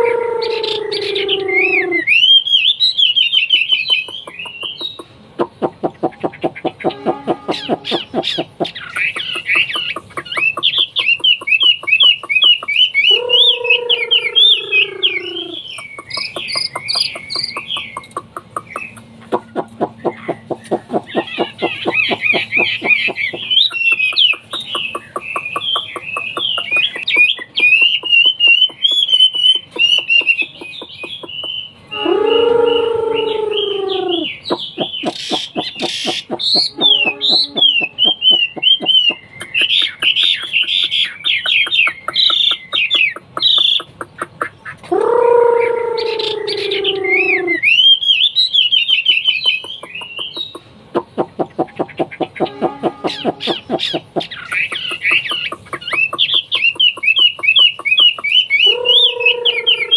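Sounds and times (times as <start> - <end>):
bird descending call: 0.0 - 40.6, 44.9 - 50.6, 52.1 - 59.9
bird singing whistled phrases: 0.4 - 5.0, 10.3 - 18.1, 20.0 - 41.2, 46.0 - 50.6, 55.9 - 59.9.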